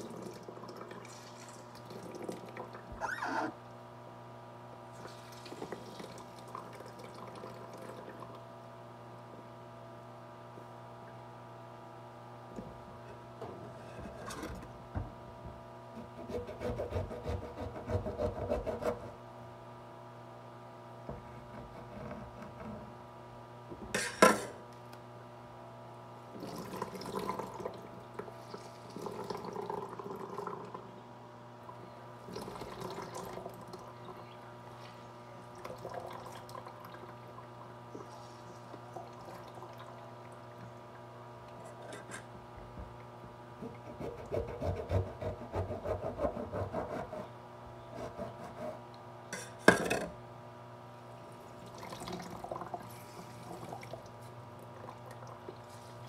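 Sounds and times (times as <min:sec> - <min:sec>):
juice dripping and pouring: 0:00.0 - 0:03.0, 0:05.0 - 0:08.4, 0:26.4 - 0:30.8, 0:32.2 - 0:34.1, 0:35.5 - 0:38.1, 0:38.7 - 0:40.8, 0:51.4 - 0:56.0.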